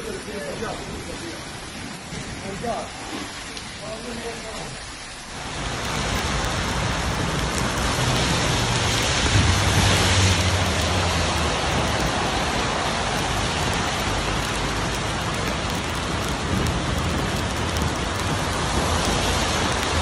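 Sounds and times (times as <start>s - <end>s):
heavy rain and hail on street: 0.0s - 20.0s
vehicle driving past on wet road: 5.4s - 16.0s.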